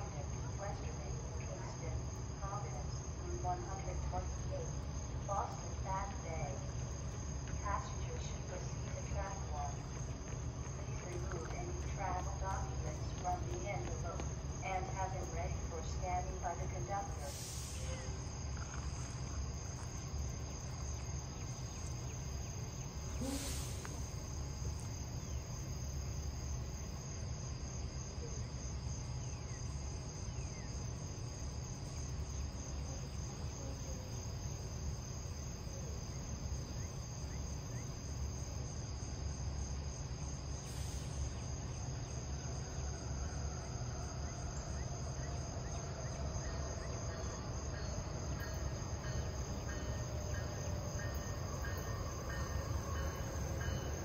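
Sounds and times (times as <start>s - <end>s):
constant low rumble: 0.0s - 26.8s
insects trilling: 0.0s - 54.0s.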